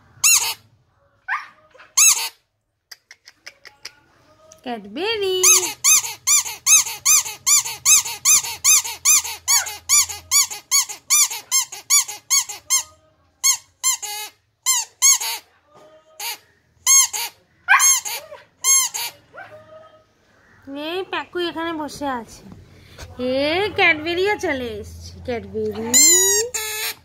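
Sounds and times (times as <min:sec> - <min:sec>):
squeaky toy squeaking: 0:00.2 - 0:00.7, 0:01.8 - 0:02.5, 0:05.4 - 0:15.5, 0:16.2 - 0:19.4, 0:25.8 - 0:27.0.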